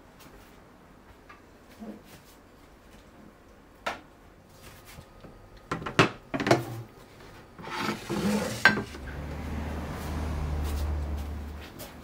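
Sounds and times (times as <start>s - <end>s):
dishes clattering on wooden counter: 5.7s - 6.8s, 7.6s - 9.0s
short scrape: 7.6s - 9.0s.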